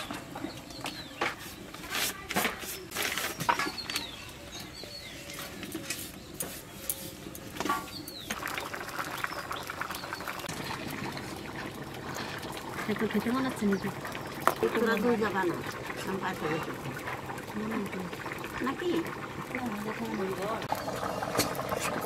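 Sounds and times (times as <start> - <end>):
birds chirping: 0.0 - 21.9
wood fire crackle: 0.0 - 22.0
curry bubbling and popping: 5.4 - 22.0.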